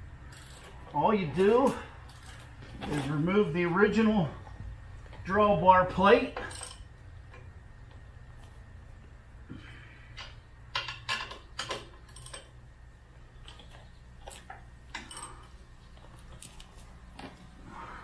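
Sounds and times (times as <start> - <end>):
metal bolts and nuts clinking: 0.2 - 3.3, 6.2 - 7.5, 10.1 - 12.6, 13.4 - 16.6.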